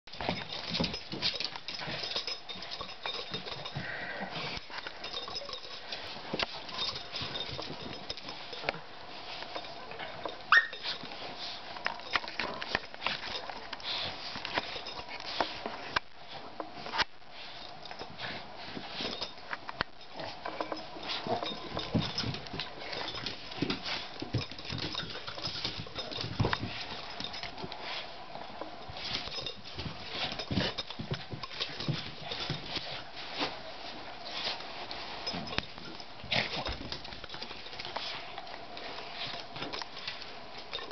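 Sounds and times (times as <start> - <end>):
rustling fur and bedding: 0.0 - 40.9
dogs play-fighting scuffling: 0.1 - 40.9
paws scrabbling: 16.8 - 40.9.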